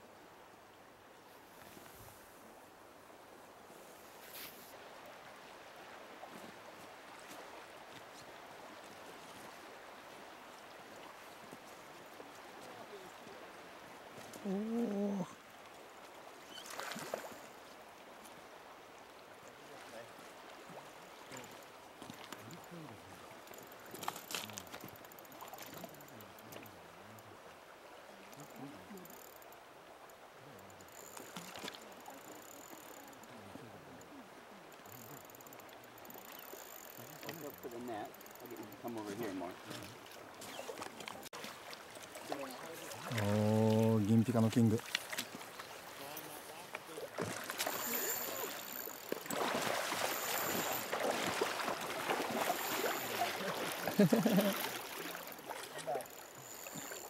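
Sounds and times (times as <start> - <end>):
river current rushing: 34.3 - 57.0
fish splashing in water: 47.1 - 57.0.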